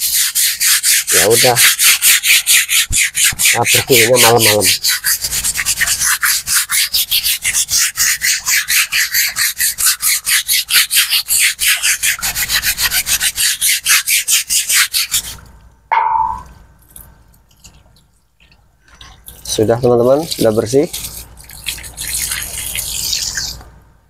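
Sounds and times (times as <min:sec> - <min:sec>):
fast scrubbing on wet tray: 0:00.0 - 0:15.4, 0:19.4 - 0:23.6
short knock: 0:15.9 - 0:16.5.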